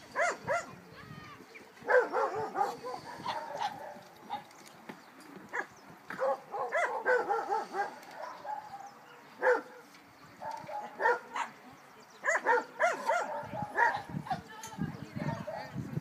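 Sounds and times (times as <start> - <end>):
dog barking and yipping: 0.1 - 0.7, 1.8 - 4.4, 5.5 - 9.7, 10.4 - 11.5, 12.2 - 14.1.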